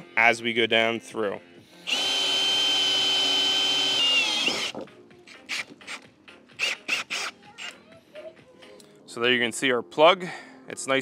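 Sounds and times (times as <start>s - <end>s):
drill hole saw cutting wood: 1.9s - 4.8s, 6.6s - 7.7s.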